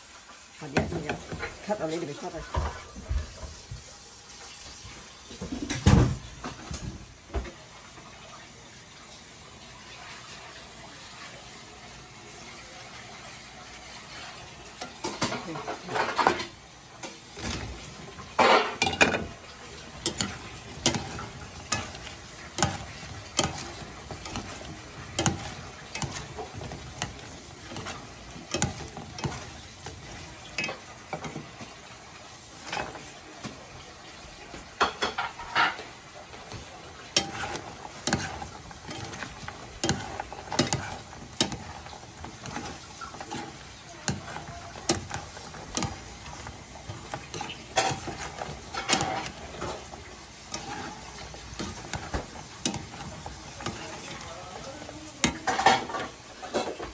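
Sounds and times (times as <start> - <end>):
sauce sizzling in a frying pan: 0.0 - 56.9
utensils clicking against pan: 14.8 - 31.9, 32.5 - 33.6, 34.5 - 56.9.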